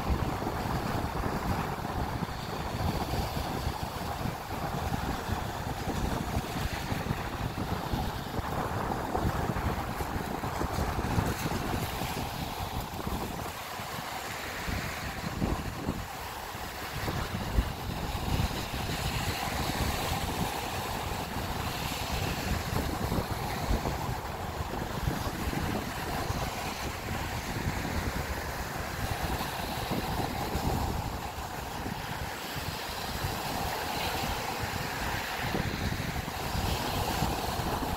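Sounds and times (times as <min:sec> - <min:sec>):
waves washing up a sandy beach: 0:00.0 - 0:37.9
wind rumbling on microphone: 0:00.0 - 0:37.9.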